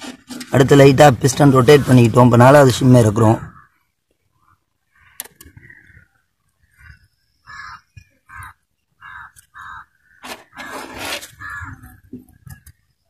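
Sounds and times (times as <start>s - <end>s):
crows cawing: 3.4s - 12.1s.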